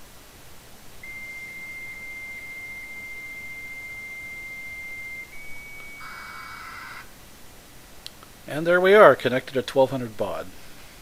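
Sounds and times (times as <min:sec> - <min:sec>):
modem answer tone: 0:01.0 - 0:07.1
hissing modem data tones: 0:01.0 - 0:07.2.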